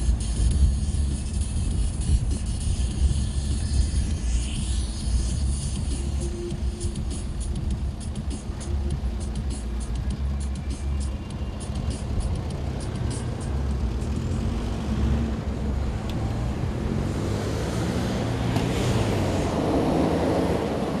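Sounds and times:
rapid high ticking: 0:00.0 - 0:14.6
vehicle engines rumbling: 0:00.0 - 0:21.0.

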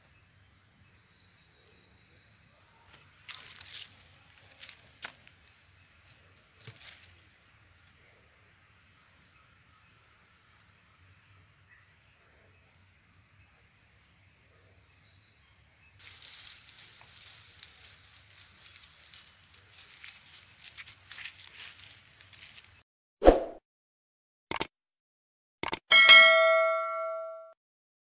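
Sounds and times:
insect drone: 0:00.0 - 0:22.8
rustling: 0:16.0 - 0:22.8.

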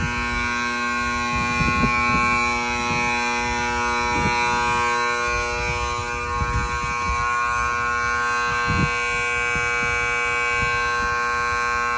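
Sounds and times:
steady buzzing drone: 0:00.0 - 0:11.9.

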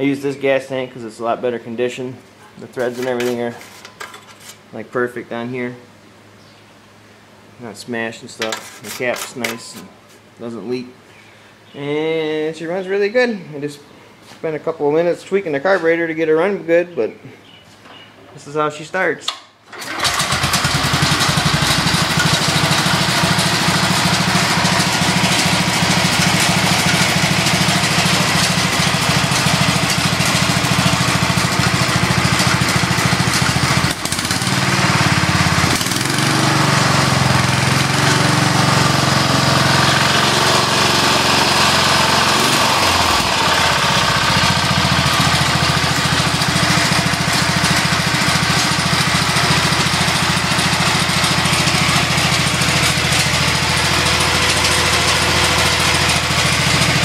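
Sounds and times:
garden tractor engine running: 0:19.7 - 0:57.0.

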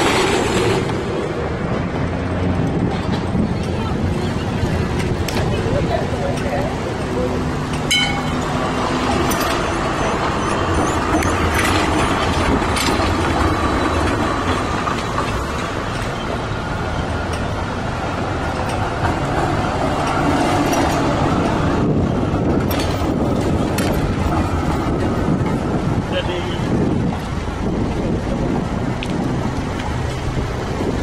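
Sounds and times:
traffic noise: 0:00.0 - 0:31.0
tram wheels on rails: 0:00.0 - 0:31.0
high squeaks: 0:07.9 - 0:12.4.

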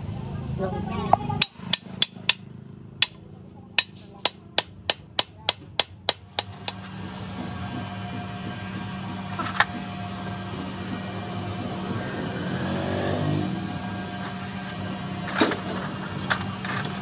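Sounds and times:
hammer striking metal: 0:01.3 - 0:06.8.

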